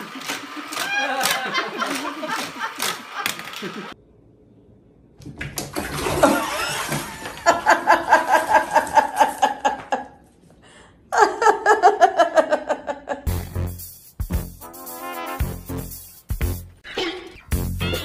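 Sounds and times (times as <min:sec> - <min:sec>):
person laughing hard: 0:00.0 - 0:04.0
water splashing in bathtub: 0:05.2 - 0:09.5.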